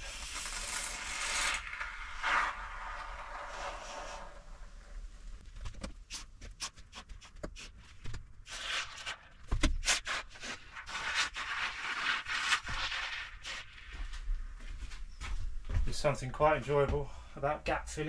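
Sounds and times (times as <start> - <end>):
expanding foam spraying from can: 0.0 - 4.8.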